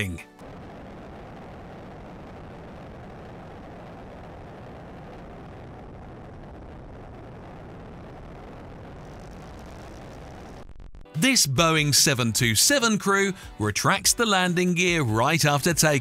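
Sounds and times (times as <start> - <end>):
rush of airflow: 0.4 - 10.9.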